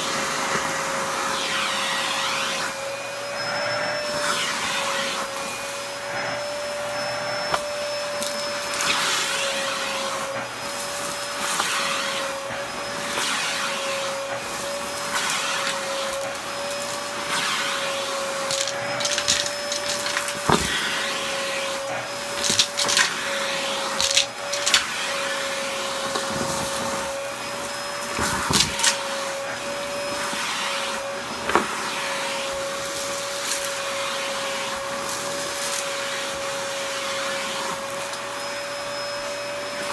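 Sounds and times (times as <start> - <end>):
stick vacuum whine: 0.0 - 39.9
debris crackling in vacuum: 18.4 - 20.8.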